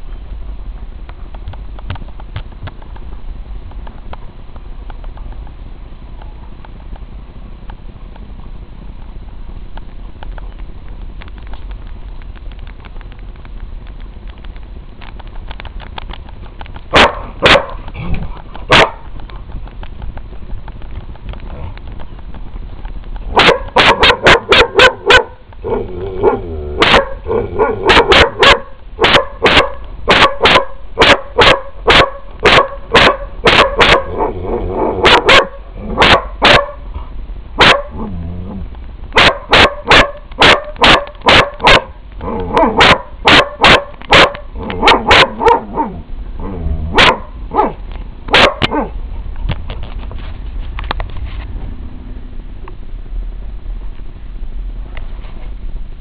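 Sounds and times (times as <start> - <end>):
dog barking: 16.9 - 17.8, 18.7 - 19.0, 23.3 - 25.4, 26.2 - 34.3, 35.0 - 36.8, 37.6 - 38.0, 39.2 - 46.0, 46.9 - 48.9.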